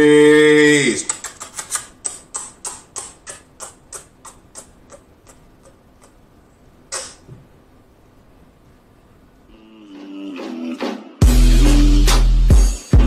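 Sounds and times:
kissing lip-smacks: 1.1 - 6.2, 6.9 - 7.3.

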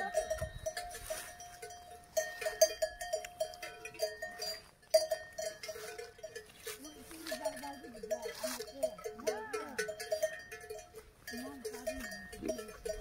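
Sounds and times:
cattle bells clanking: 0.0 - 13.0
grass being torn by grazing: 5.6 - 8.8.

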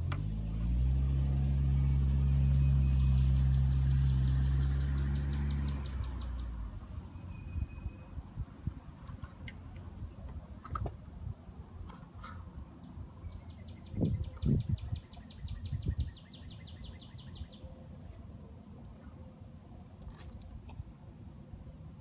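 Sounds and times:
songbird trilling: 13.2 - 17.7.

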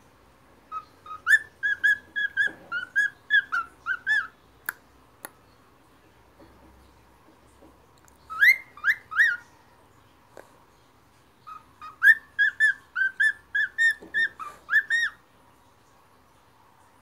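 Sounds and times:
cockatiel whistling: 0.7 - 4.3, 8.3 - 9.4, 11.5 - 15.2.

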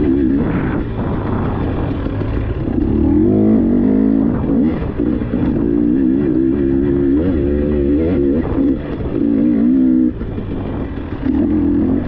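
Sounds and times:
dirt bike engine revving: 0.0 - 12.0.

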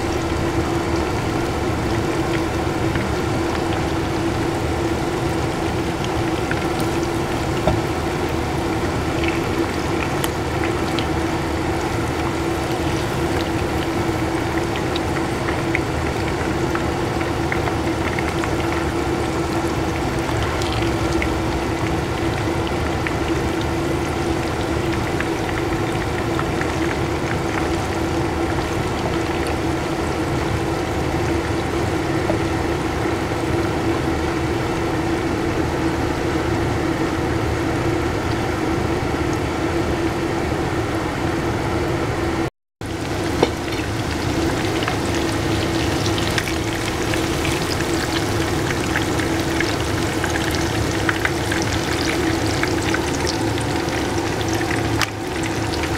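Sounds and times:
oil popping: 0.0 - 23.4, 42.8 - 55.9
food sizzling in oil: 0.0 - 38.0, 42.8 - 55.9.

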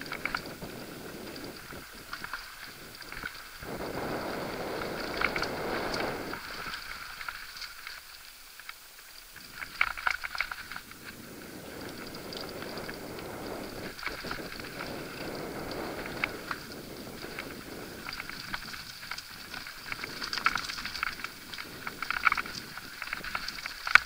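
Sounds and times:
bike tyres rumbling on trail: 0.0 - 24.0.

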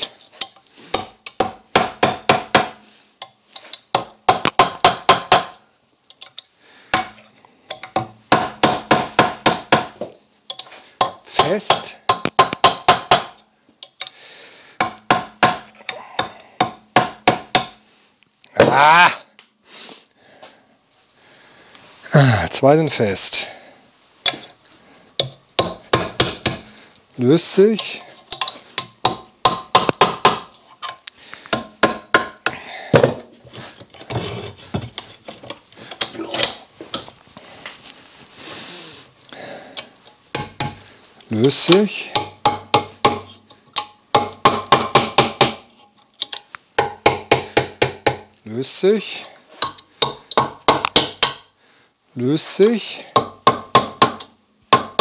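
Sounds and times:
hammer striking metal tool: 0.0 - 2.8, 7.0 - 13.4, 14.8 - 17.8, 25.2 - 26.7, 27.8 - 30.6, 40.3 - 40.8, 42.1 - 48.3, 49.6 - 51.5
hammer striking metal: 0.9 - 2.8, 14.8 - 17.8, 25.2 - 26.7, 28.4 - 30.5.

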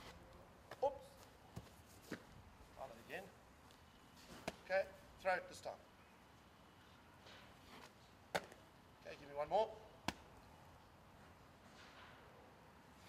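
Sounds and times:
ball slapping hands: 8.3 - 8.6, 10.0 - 10.3.

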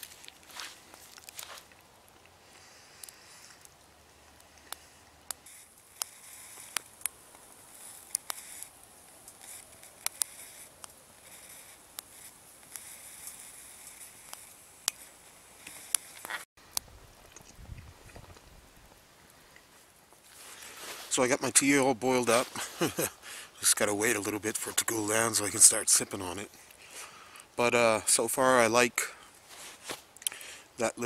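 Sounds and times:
faint steady hiss: 0.0 - 31.0
wood fire crackling: 0.0 - 31.0
sharp fire pops: 4.6 - 19.1.

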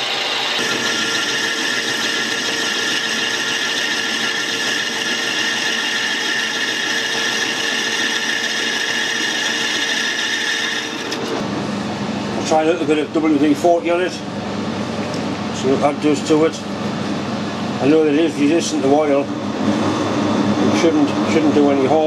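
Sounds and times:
metal lathe boring: 0.0 - 11.4
vacuum cleaner running: 0.0 - 14.2.

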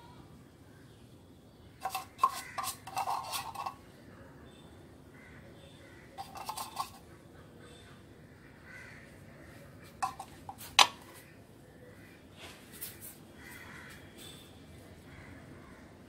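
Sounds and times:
spatula tapping and scraping tin: 1.8 - 3.8, 6.2 - 7.1, 10.0 - 11.2.

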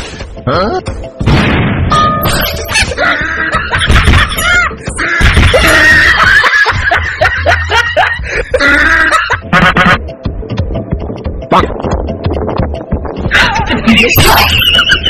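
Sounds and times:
rapid repeated laughter: 2.6 - 10.0.

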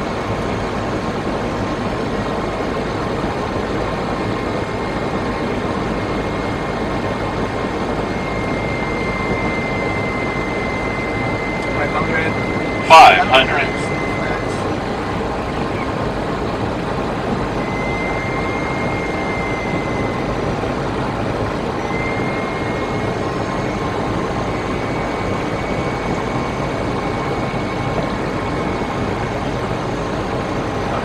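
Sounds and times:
airflow and jet engines rushing: 0.0 - 31.0
faint thin high tone: 8.1 - 14.8.

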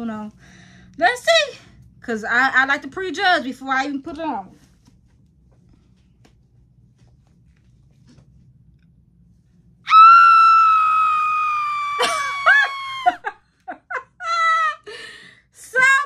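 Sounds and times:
woman squealing: 9.9 - 13.3
woman laughing: 11.9 - 15.0.

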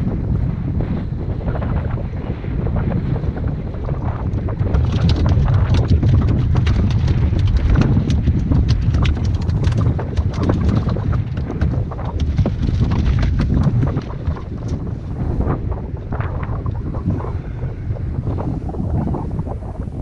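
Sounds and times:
wind buffeting microphone: 0.0 - 20.0
rapid irregular clicking and tapping: 4.0 - 15.6.

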